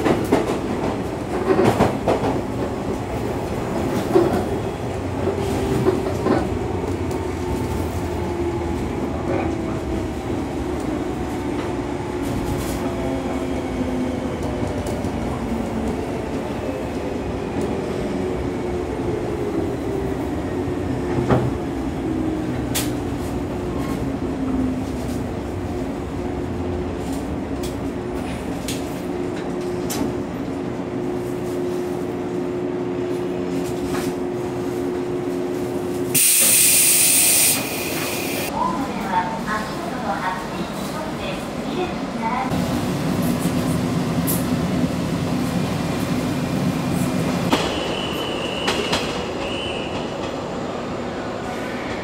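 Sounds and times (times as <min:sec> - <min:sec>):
loud air hiss: 0:36.2 - 0:38.5.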